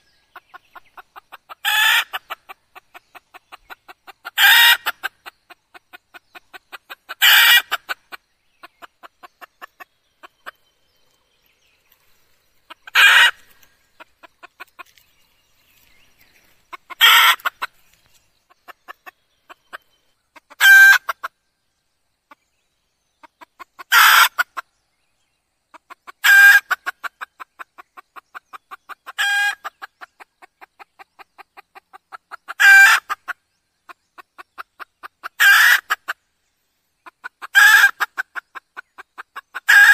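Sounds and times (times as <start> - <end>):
hen calling: 0.0 - 2.6, 4.0 - 5.1, 12.7 - 15.0, 16.7 - 17.8.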